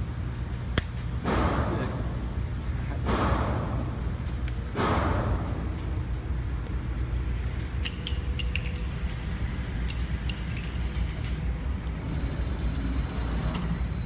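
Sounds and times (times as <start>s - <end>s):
steady low hum: 0.0s - 14.0s
light metallic clicks and clinks: 6.9s - 11.6s, 13.0s - 14.0s.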